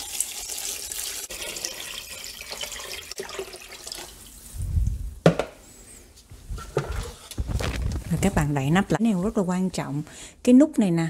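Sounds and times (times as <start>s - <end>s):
water pouring into metal pot: 0.0s - 4.4s.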